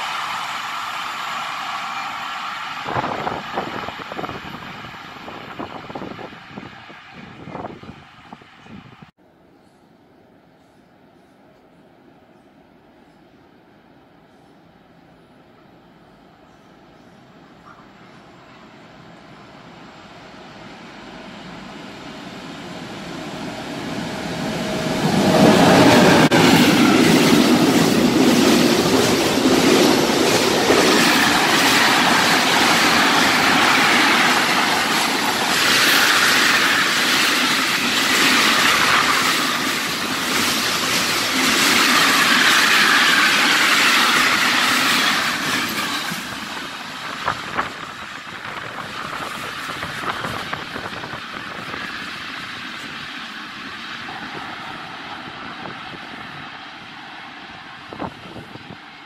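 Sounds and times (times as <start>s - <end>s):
freight train passing: 0.0s - 59.0s
wheels rattling on rail: 20.7s - 59.0s.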